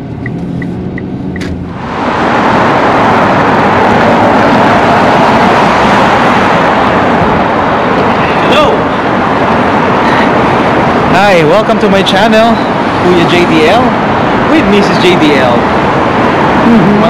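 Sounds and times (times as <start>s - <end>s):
car cabin hum: 0.0s - 2.1s
city street noise: 0.0s - 17.0s.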